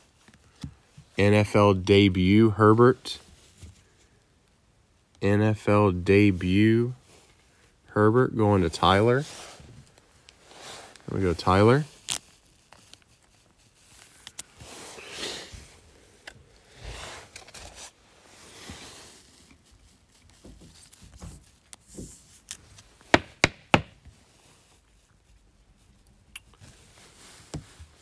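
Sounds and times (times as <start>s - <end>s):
card rustling in plastic sleeve: 10.9s - 15.1s, 16.1s - 23.1s
sharp knocks: 23.1s - 24.0s.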